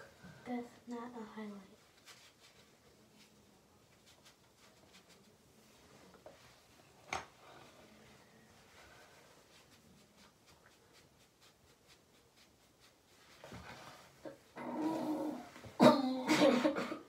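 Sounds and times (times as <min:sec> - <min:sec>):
tissue rubbing on skin: 0:01.8 - 0:06.8, 0:07.8 - 0:15.6.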